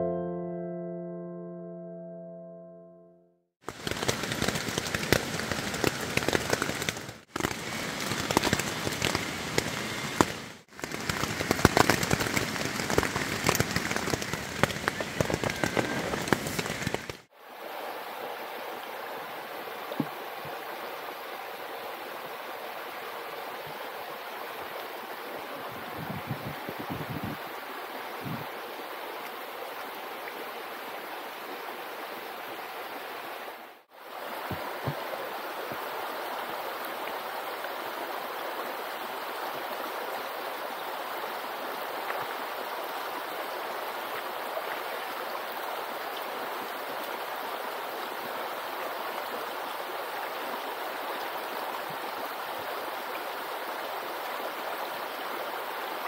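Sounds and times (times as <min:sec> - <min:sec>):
heavy rain on tent fabric: 0:03.6 - 0:18.6, 0:32.4 - 0:56.0
stream running over rocks: 0:03.6 - 0:56.0.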